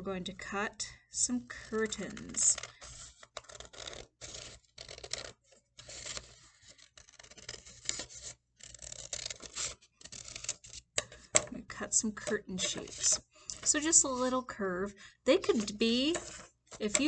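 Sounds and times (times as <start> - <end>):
scissors cutting paper: 1.6 - 11.1, 12.0 - 14.4, 15.4 - 17.0.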